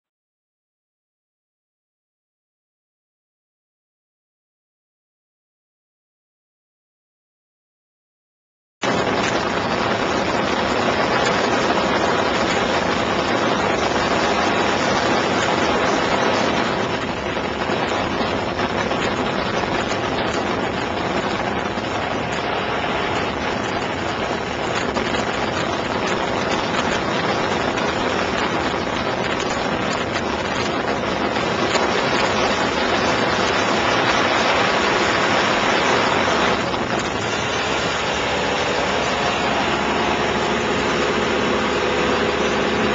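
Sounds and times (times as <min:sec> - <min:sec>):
airplane engine and propeller drone: 0:08.8 - 0:42.9.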